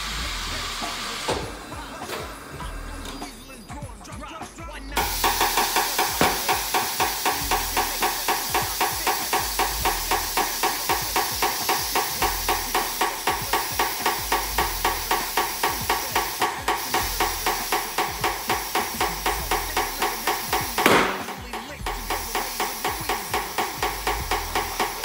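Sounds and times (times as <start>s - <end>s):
pulsing compressed air hiss: 0.0s - 3.5s, 4.9s - 25.0s.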